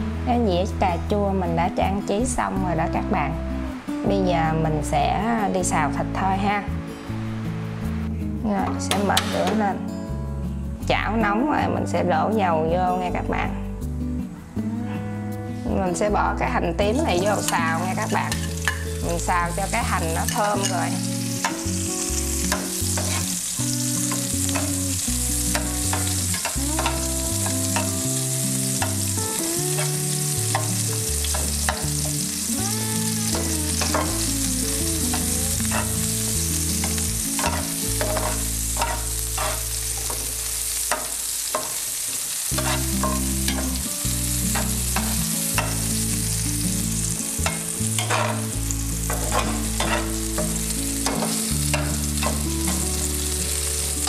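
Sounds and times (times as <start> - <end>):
shallots sizzling in oil: 0.0 - 13.4, 15.5 - 54.0
metal spatula scraping a pan: 17.2 - 19.0, 22.4 - 24.8, 35.1 - 36.1, 36.8 - 41.8, 42.5 - 43.8, 47.4 - 52.8.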